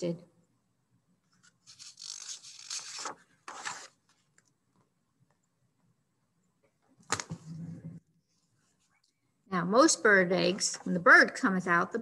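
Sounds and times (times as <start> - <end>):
paper scrape: 1.4 - 4.0
book pages swishing: 1.5 - 4.2.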